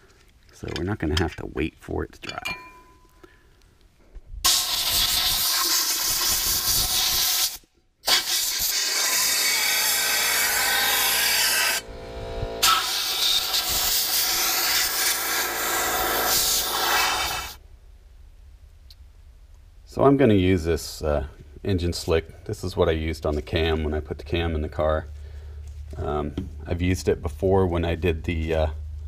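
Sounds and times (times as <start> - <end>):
compressed air blow gun hissing: 4.5 - 11.7, 12.6 - 17.6.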